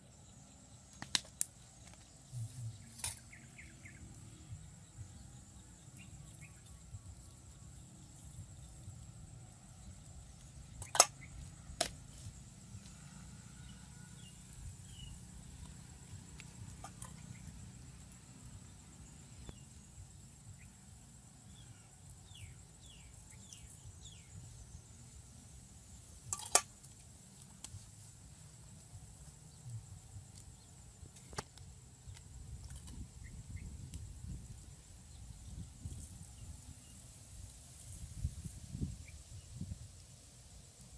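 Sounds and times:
bird chirping: 0.0s - 8.9s.

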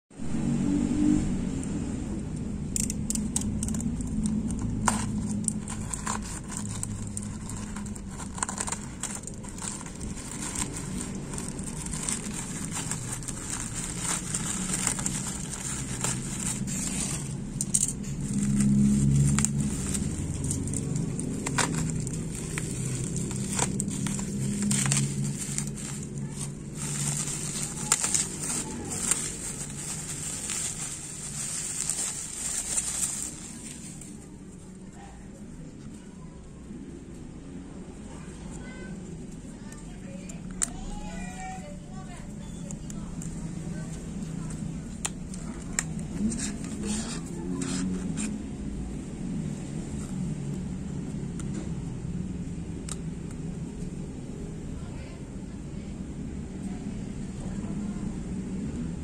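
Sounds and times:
low rumble: 0.1s - 40.8s
plastic packaging crinkling: 2.7s - 34.6s, 39.2s - 48.6s
plastic bag tearing open: 2.8s - 34.2s.

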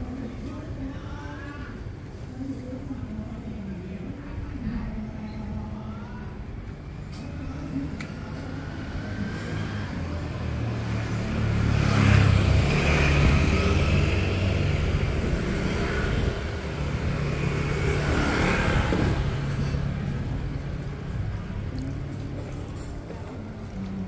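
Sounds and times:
motorbikes passing: 7.5s - 24.0s
vehicle passing: 8.2s - 22.4s.

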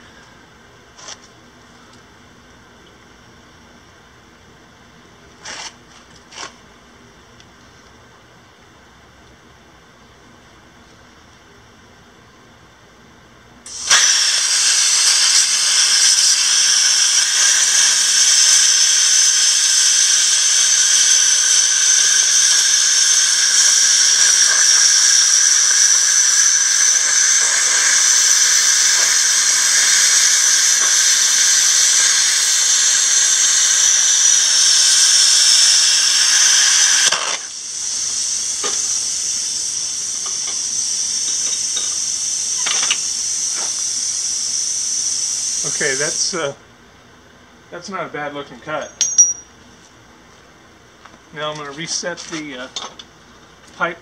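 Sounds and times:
plasma cutter hissing: 13.7s - 46.5s
quiet hiss: 45.3s - 54.0s.

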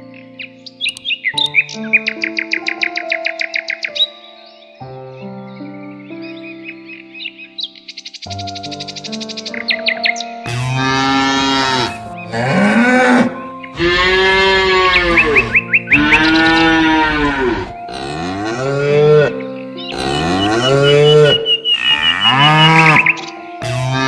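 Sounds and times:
cattle mooing: 10.5s - 24.0s.

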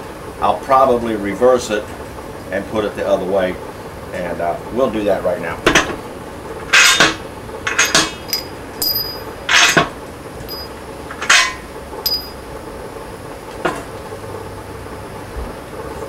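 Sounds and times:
metal bolts clinking and knocking: 7.7s - 9.9s, 10.5s - 12.4s.

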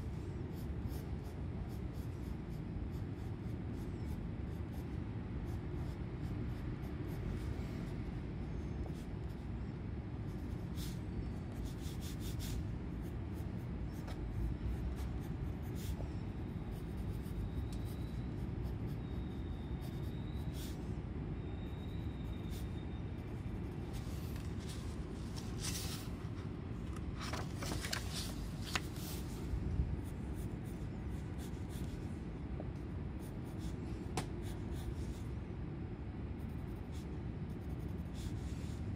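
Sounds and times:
pencil scratching on paper: 0.0s - 8.0s, 10.3s - 20.8s, 36.4s - 38.5s
steady low hum: 0.0s - 38.9s.

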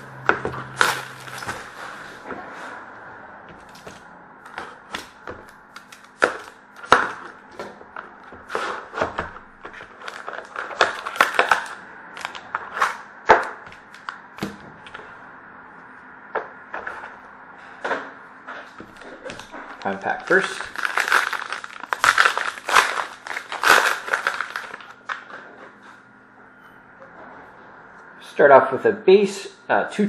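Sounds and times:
packaging rustling: 0.8s - 2.0s, 3.6s - 14.2s, 18.8s - 25.4s.

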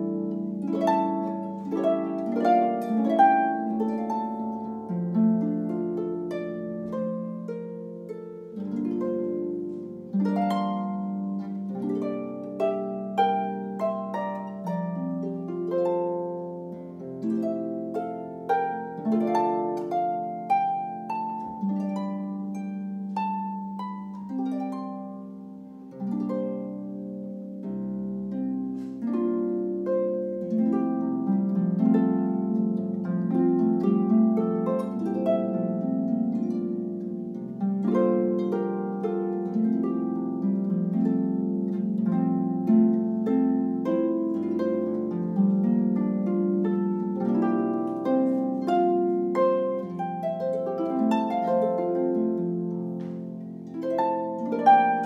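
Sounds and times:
harp plucked notes: 0.0s - 55.0s.

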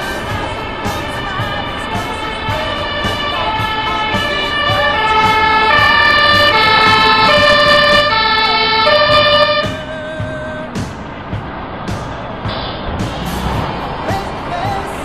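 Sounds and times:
two-tone fire engine sirens: 0.0s - 10.2s.

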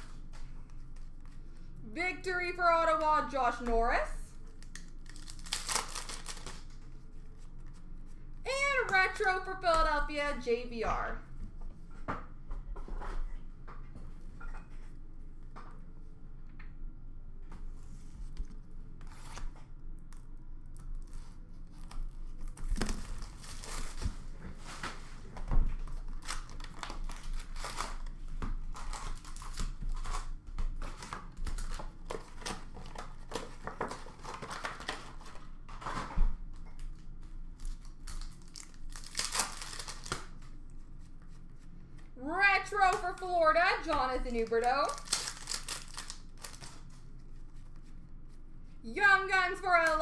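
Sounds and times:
card wrappers tearing and crinkling: 4.5s - 6.9s, 21.0s - 24.1s, 25.9s - 36.0s, 37.6s - 40.5s, 43.8s - 47.1s
cards rustling: 4.6s - 7.8s, 42.7s - 47.6s.

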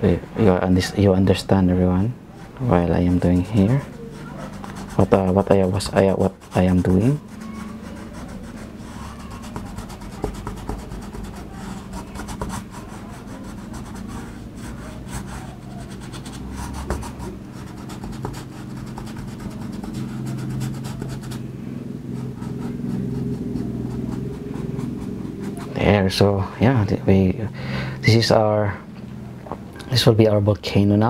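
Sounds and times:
steady low hum: 0.0s - 31.0s
paintbrush scratching on canvas: 2.3s - 26.2s.

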